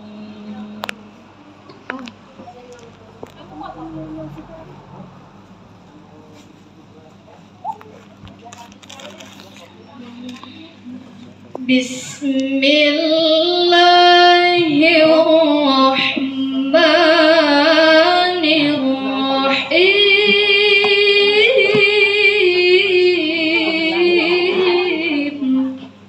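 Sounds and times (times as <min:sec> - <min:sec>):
woman reciting melodically: 0:09.8 - 0:26.0.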